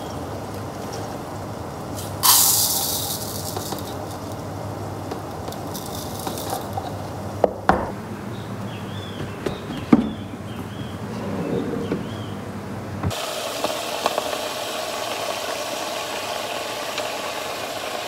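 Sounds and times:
rice grains pouring into bowl: 2.0 - 4.5, 5.3 - 6.8
sharp knocks: 7.4 - 8.0.

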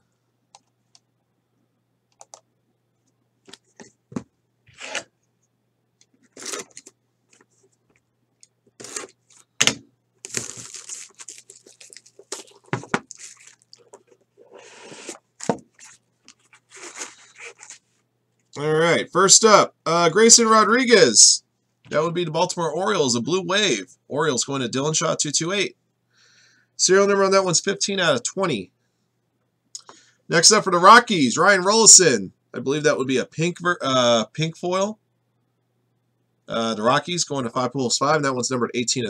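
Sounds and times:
card pack tearing and rustling: 6.2 - 6.9, 8.8 - 9.5, 10.2 - 17.9.

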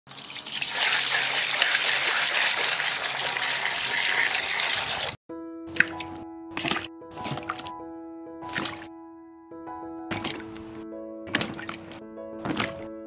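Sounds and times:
water pouring into basin: 0.1 - 5.2, 8.5 - 8.9
light music: 5.3 - 13.0
peppers plopping into water: 5.7 - 7.7, 8.4 - 8.9, 10.1 - 12.9.

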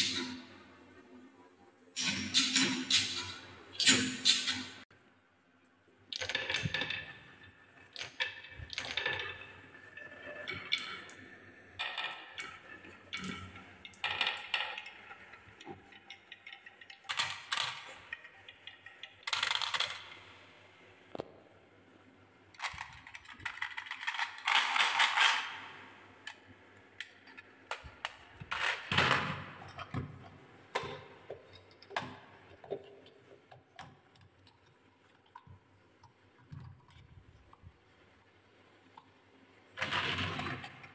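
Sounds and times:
marbles rattling on wooden tracks: 15.9 - 20.1.

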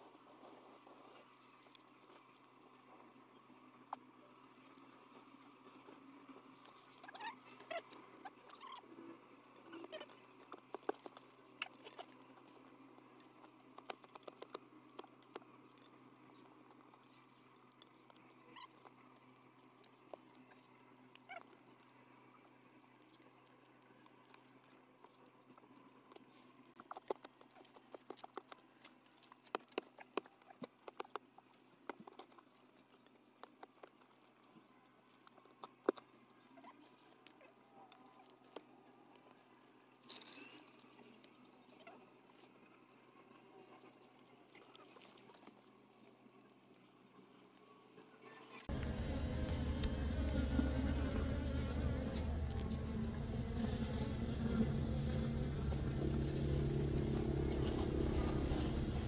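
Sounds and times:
hand tool tapping and scraping earth: 9.8 - 20.5, 26.8 - 34.4.

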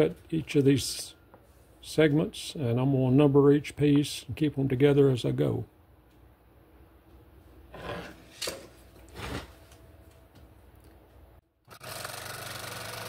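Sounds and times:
scroll saw running: 11.7 - 13.0.

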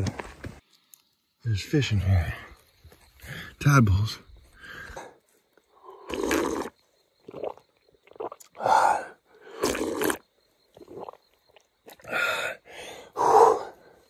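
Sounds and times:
gasping breaths: 4.5 - 6.1, 12.0 - 14.0
man slurping water: 5.9 - 12.3.

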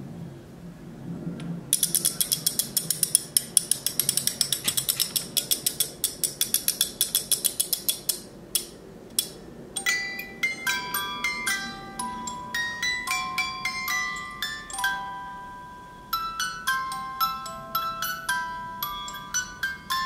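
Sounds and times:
music box ratchet clicks: 1.7 - 9.9.

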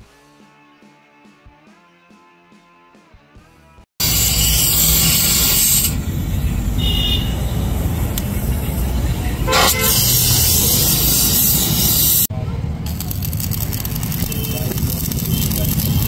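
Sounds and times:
vehicle horns tooting: 6.2 - 10.6, 14.1 - 15.8.

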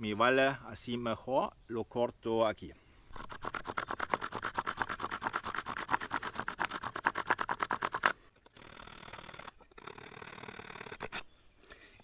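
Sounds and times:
stone sawing wooden branch: 3.1 - 11.3.

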